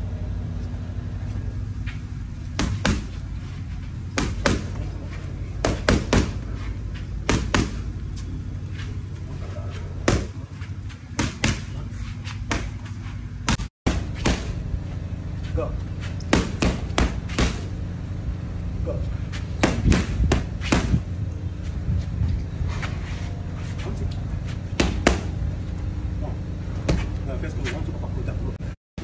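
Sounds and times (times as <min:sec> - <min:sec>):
boxing gloves smacking mitts: 0:02.5 - 0:03.3, 0:04.1 - 0:08.2, 0:09.9 - 0:14.6, 0:16.2 - 0:17.7, 0:19.3 - 0:21.1, 0:24.7 - 0:25.4.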